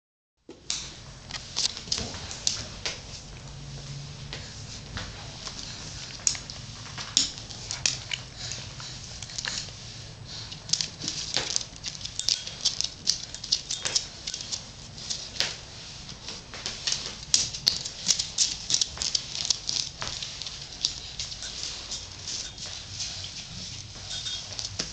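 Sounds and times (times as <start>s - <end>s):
dog claws clicking on hard floor: 10.4s - 15.6s, 16.5s - 23.3s.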